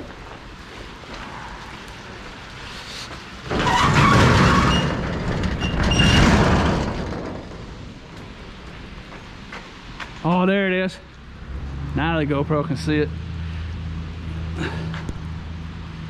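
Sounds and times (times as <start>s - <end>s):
car passing: 10.7s - 16.0s.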